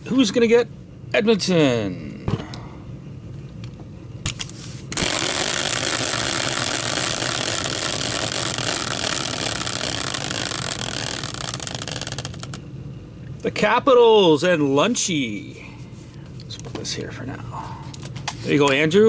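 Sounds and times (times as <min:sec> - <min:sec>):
caster wheel whirring: 0:04.9 - 0:12.6.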